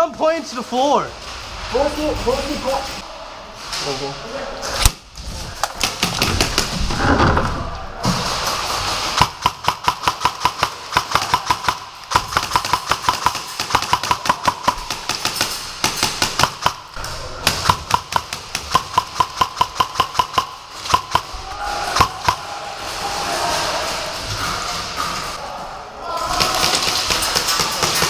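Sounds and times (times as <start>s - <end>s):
airsoft rifles firing bursts: 9.1s - 16.8s.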